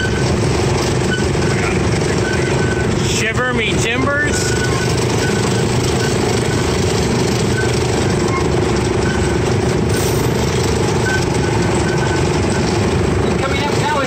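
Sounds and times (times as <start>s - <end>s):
miniature train engine droning: 0.0s - 14.0s.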